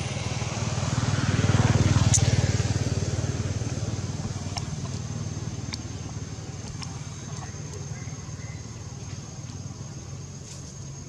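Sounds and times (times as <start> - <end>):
vehicle engine passing: 0.0 - 7.8.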